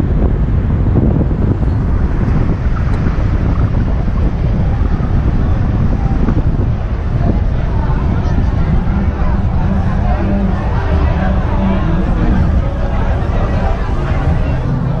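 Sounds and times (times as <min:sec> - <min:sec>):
wind buffeting microphone: 0:00.0 - 0:15.0.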